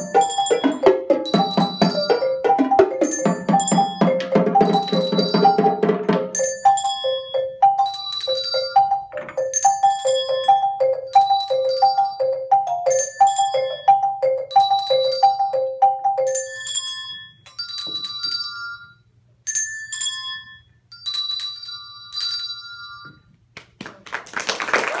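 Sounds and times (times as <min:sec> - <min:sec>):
handbells ringing: 0:00.0 - 0:23.3
applause: 0:23.6 - 0:25.0.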